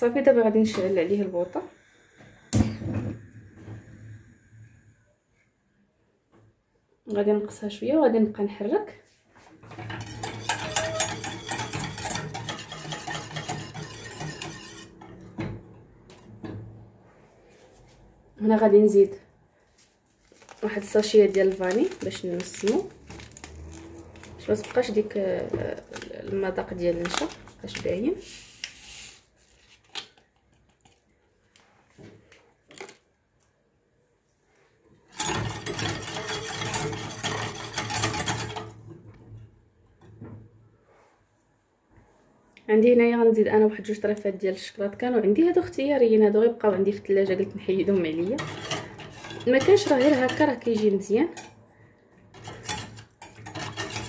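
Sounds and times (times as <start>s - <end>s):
whisk clinking and scraping in pan: 9.7s - 15.2s, 35.2s - 38.8s, 47.9s - 51.5s, 52.4s - 54.0s.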